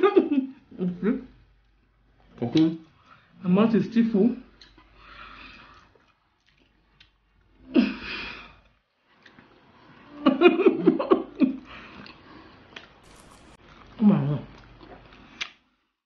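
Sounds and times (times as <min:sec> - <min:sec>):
wordless vocal sound while eating: 0:11.8 - 0:15.6.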